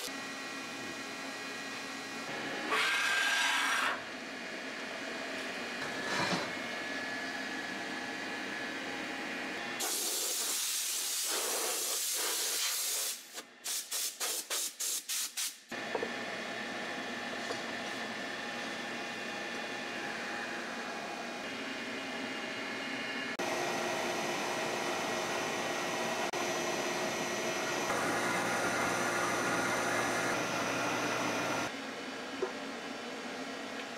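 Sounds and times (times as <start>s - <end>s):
milling machine humming: 15.8s - 33.9s.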